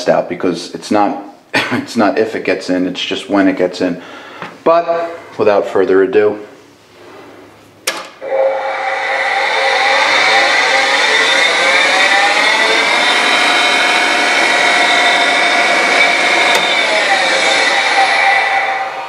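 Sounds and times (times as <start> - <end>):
grinder motor whine: 8.2 - 19.0.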